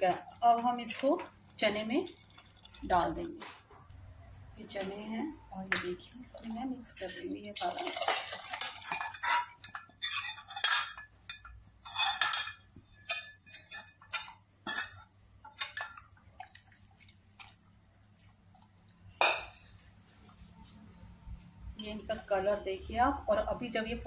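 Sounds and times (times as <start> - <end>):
ladle scraping a pan: 7.8 - 15.9.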